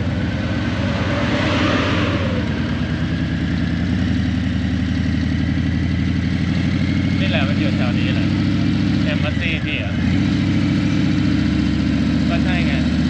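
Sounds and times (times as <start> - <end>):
brief rush of noise: 0.0 - 3.8
motorcycle engine running: 2.4 - 13.0.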